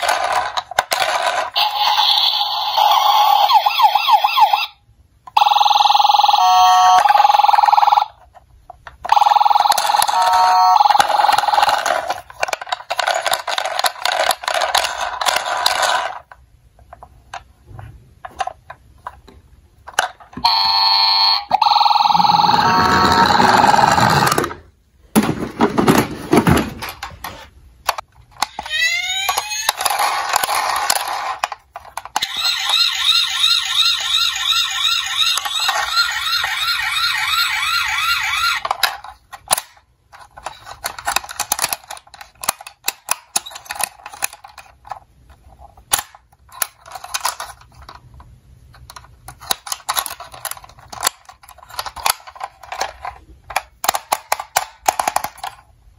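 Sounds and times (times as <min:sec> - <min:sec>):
plastic toys clicking and rattling: 0:00.0 - 0:03.5, 0:06.8 - 0:17.5, 0:18.2 - 0:20.7, 0:22.1 - 0:24.6, 0:25.2 - 0:55.8
toy electronic sound: 0:00.0 - 0:08.2, 0:09.0 - 0:12.2, 0:20.4 - 0:24.4, 0:28.4 - 0:31.4, 0:32.1 - 0:38.8
electronic yelp siren: 0:01.6 - 0:04.8, 0:05.4 - 0:08.1, 0:09.1 - 0:11.5, 0:20.4 - 0:24.3, 0:28.6 - 0:29.9, 0:32.2 - 0:38.6.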